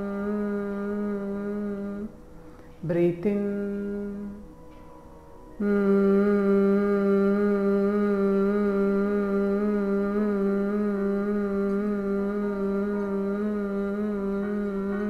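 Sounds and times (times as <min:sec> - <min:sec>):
quiet in-breath: 0:02.2 - 0:02.8
woman humming one note: 0:05.6 - 0:15.0.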